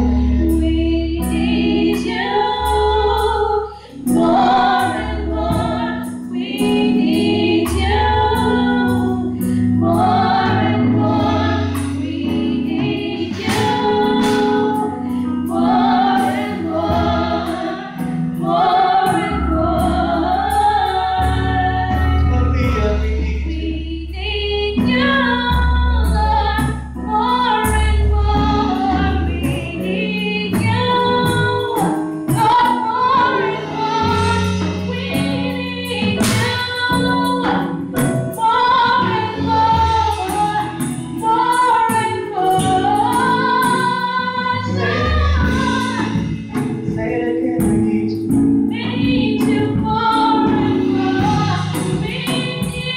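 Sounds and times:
women singing in harmony: 0.0 - 22.2, 23.5 - 46.5, 48.6 - 52.9
sustained low bass notes: 0.0 - 52.9
sharp beats: 13.2 - 14.9.

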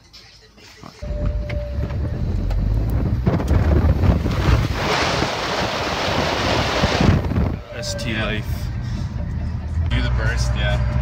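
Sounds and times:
wind buffeting microphone: 1.7 - 8.7.

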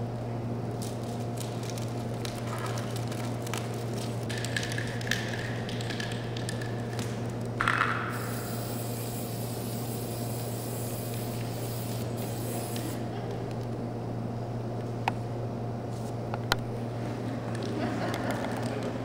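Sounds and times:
spray can rattling: 0.8 - 13.0
spray paint hissing: 7.6 - 13.1.

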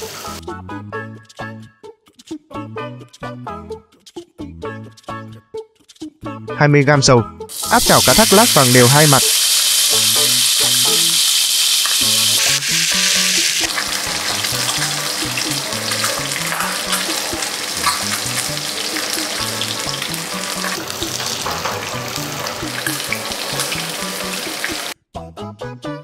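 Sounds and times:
fish sizzling in hot oil: 7.5 - 25.0.

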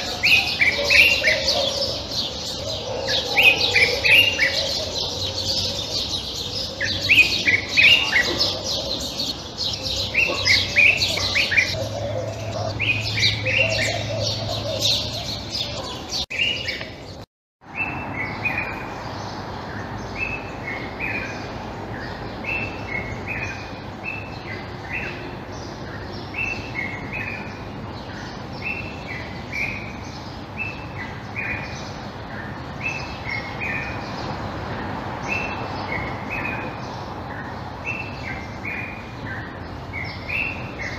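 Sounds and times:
bird chirping and twittering: 0.0 - 34.6.

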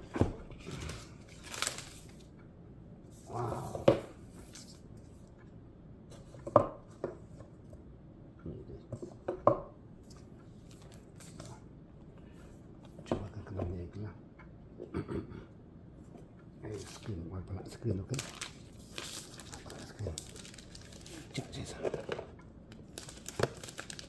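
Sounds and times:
plastic wrapping rustling: 0.5 - 2.3, 18.0 - 24.0.

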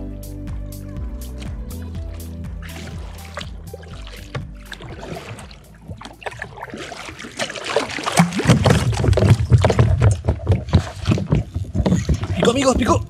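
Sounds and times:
paddle splashing in water: 1.4 - 13.0.

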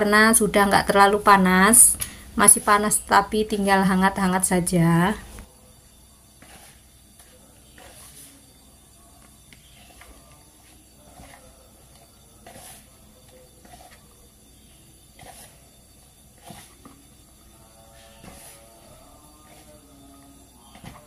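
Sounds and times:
hands kneading dough squishing: 6.4 - 8.4, 9.5 - 12.9, 13.6 - 14.1, 15.2 - 15.6.

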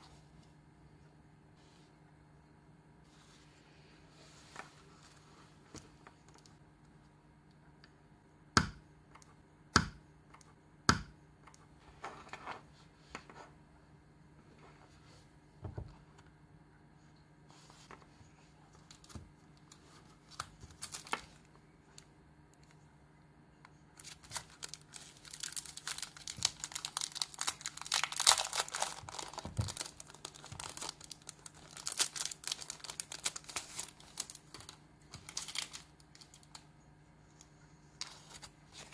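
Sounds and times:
plastic wrapper crinkling: 18.8 - 21.5, 24.0 - 36.6.

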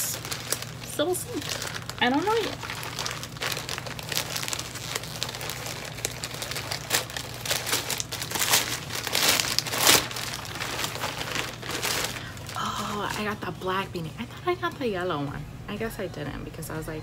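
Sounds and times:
packaging crinkling and rustling: 0.0 - 13.4.

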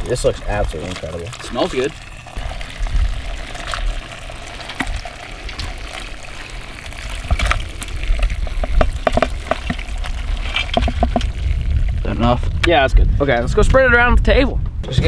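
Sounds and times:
water pouring into a colander: 0.0 - 12.3
knocks and thuds: 8.6 - 9.8, 10.7 - 11.3.

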